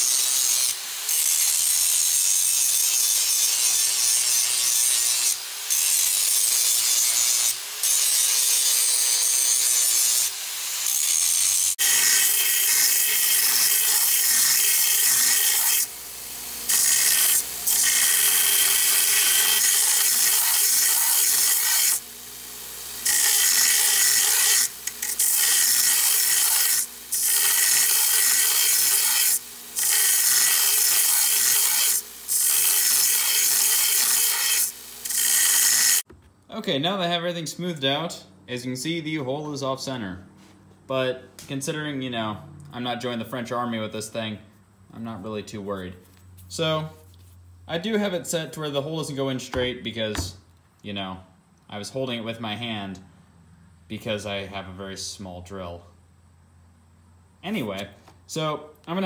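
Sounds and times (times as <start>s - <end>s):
angle grinder grinding steel: 0.0s - 36.1s
belt grinder sanding steel: 0.0s - 36.1s.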